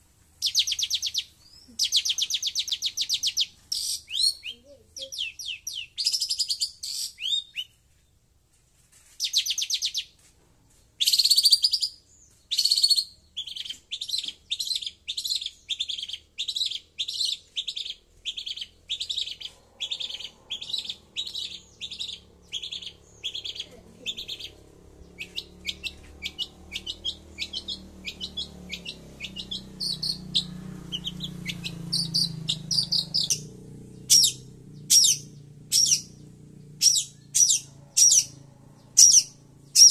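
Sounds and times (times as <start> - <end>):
faint low rumble: 16.4 - 39.9.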